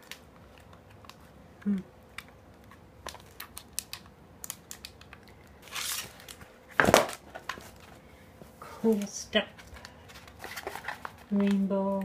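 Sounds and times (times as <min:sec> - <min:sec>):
grip tape crinkling: 0:00.0 - 0:08.0, 0:08.8 - 0:12.0
grip tape scraping: 0:02.1 - 0:06.4.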